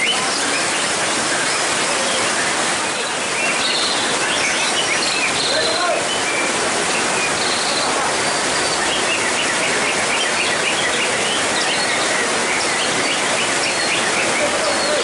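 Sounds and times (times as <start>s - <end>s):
bird singing whistled notes: 0.0s - 0.8s, 7.2s - 12.0s
heavy rain hissing: 0.0s - 15.0s.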